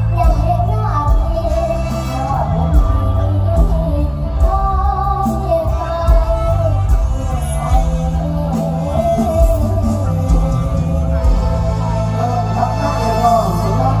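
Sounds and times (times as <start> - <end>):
girl singing into microphone: 0.0 - 10.6
amplified band music: 0.0 - 14.0.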